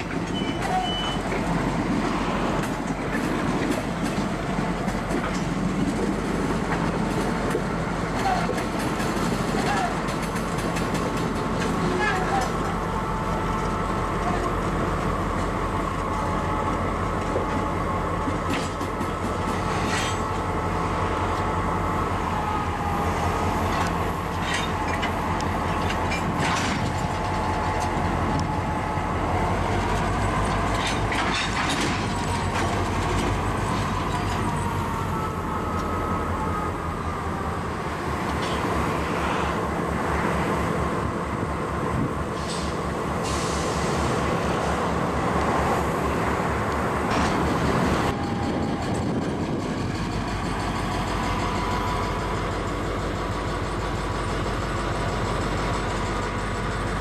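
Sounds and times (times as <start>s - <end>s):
diesel locomotive running: 0.0s - 57.0s
wheels and couplers clanking: 23.4s - 36.0s.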